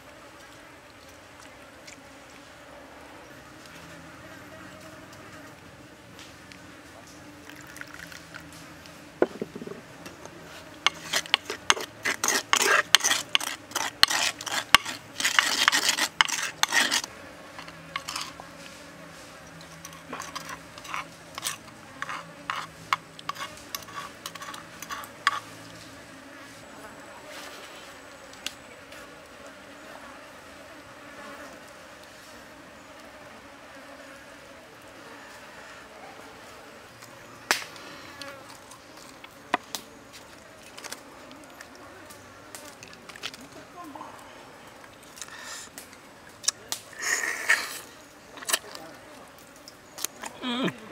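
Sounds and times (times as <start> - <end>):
spoon scraping in wooden mortar: 7.5 - 8.6, 9.2 - 18.8, 19.4 - 25.8, 47.0 - 48.8.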